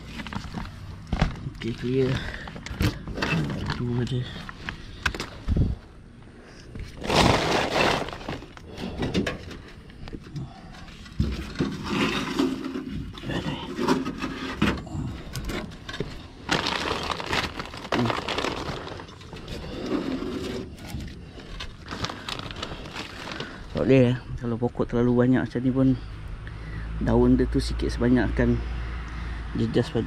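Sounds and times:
plastic bag rustling: 0.0s - 5.5s, 6.8s - 9.8s, 15.3s - 24.1s
hands scraping leaves from gutter: 7.0s - 9.0s.

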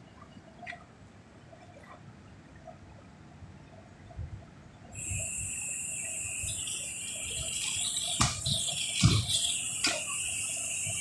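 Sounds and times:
gas jet hissing and whistling: 5.0s - 11.0s.

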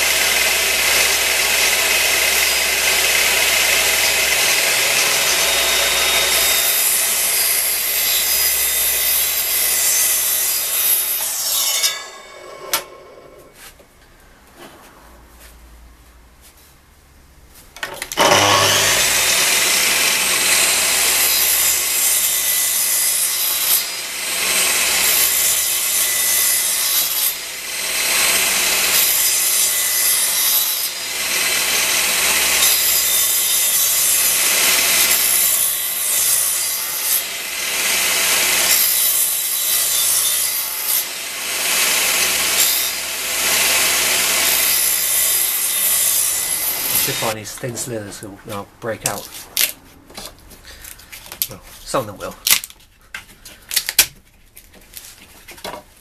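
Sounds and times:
mitre saw motor whining: 0.0s - 13.6s, 18.1s - 22.0s
saw blade cutting wood: 0.0s - 13.8s, 18.1s - 50.4s.

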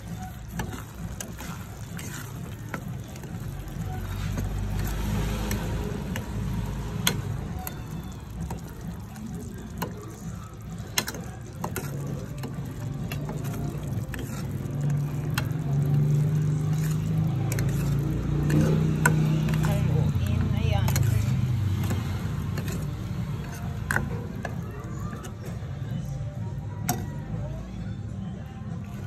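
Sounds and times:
metal spoon scraping saucepan: 0.0s - 25.7s.

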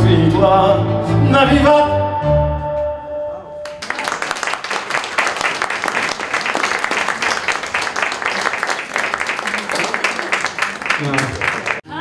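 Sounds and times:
audience applause: 3.7s - 12.0s.

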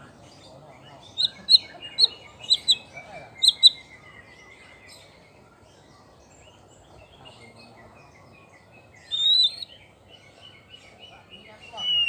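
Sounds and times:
bird chirping: 0.0s - 12.0s
bird whistled phrase: 9.1s - 9.7s, 11.7s - 12.0s.

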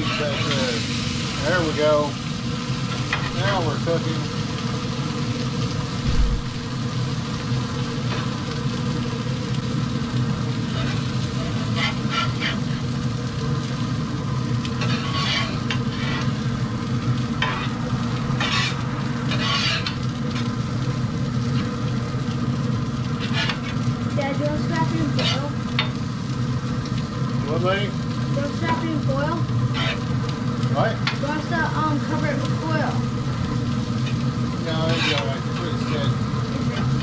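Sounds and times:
seafood sizzling on a grill: 0.0s - 37.0s
steady low hum: 4.3s - 34.6s
metal tongs scraping grate: 14.8s - 16.4s, 18.4s - 20.0s, 23.2s - 23.8s, 25.2s - 25.5s, 29.7s - 30.1s, 34.8s - 35.7s.

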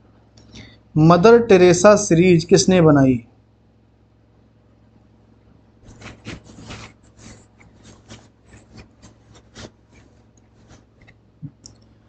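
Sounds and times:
short scratchy clicks and rubs: 5.8s - 11.8s.

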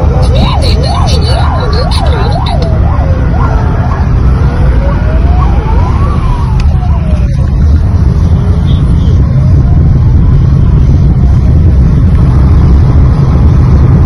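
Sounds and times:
police sirens wailing: 0.0s - 12.1s
road noise inside moving car: 0.0s - 14.0s.

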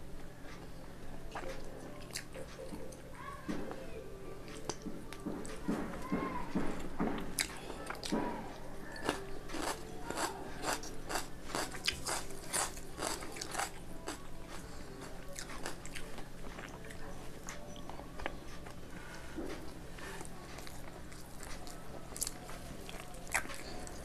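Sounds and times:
person chewing crisp food: 1.3s - 3.0s, 7.2s - 8.2s, 8.8s - 24.0s.

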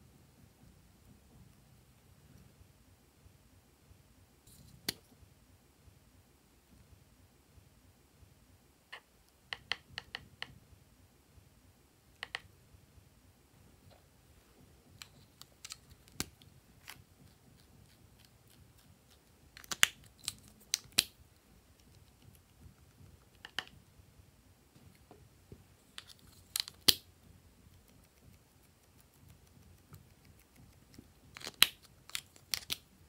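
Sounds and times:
small plastic parts clicking: 31.3s - 32.9s.

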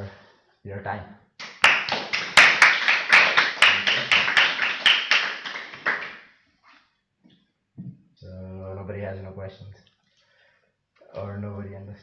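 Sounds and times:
people applauding: 1.4s - 6.3s.

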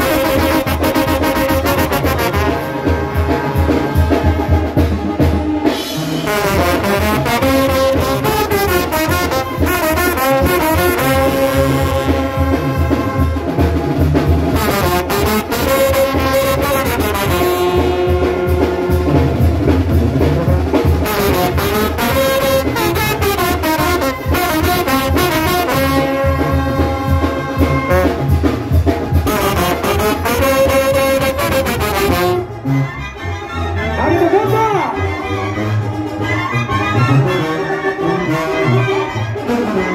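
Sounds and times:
band low beat: 0.0s - 32.9s
trombones playing melody: 0.0s - 39.9s.

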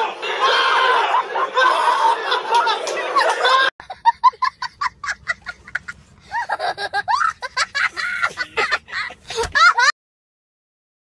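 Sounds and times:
young child laughing: 1.7s - 9.9s.

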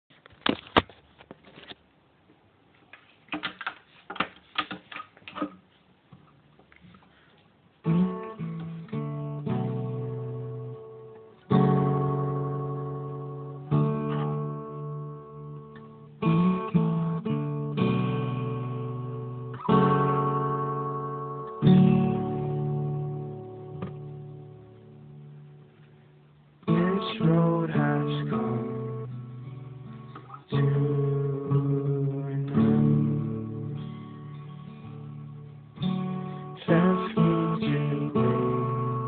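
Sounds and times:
acoustic guitar strummed chords: 7.8s - 39.0s.

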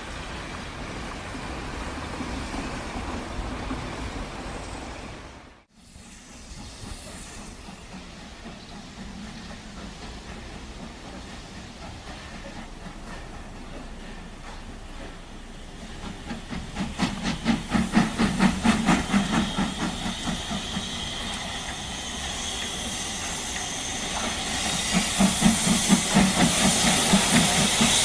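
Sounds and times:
hiss of escaping steam: 5.7s - 28.0s
steam locomotive chuffing: 5.8s - 28.0s.

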